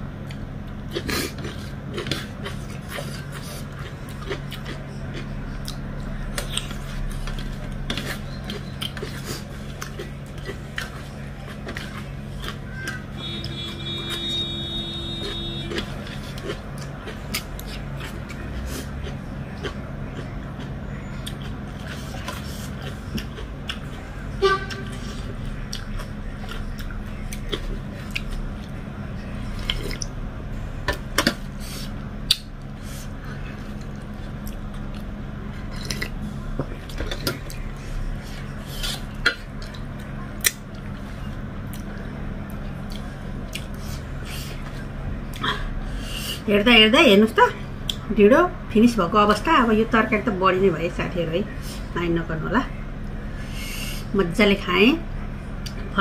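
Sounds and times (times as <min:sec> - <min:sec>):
steady low hum: 0:00.0 - 0:56.0
chewing: 0:00.2 - 0:30.2, 0:30.9 - 0:45.7.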